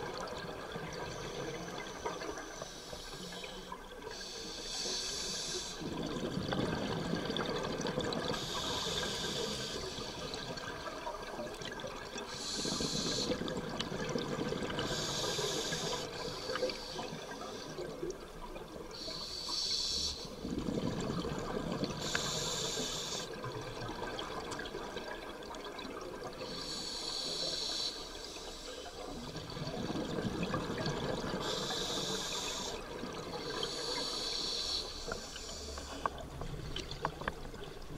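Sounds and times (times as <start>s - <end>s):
exhaled bubbles hissing: 0.0s - 37.9s
diver inhaling through regulator: 12.3s - 13.5s, 14.8s - 17.8s, 22.0s - 23.4s, 31.3s - 32.9s, 33.5s - 36.2s.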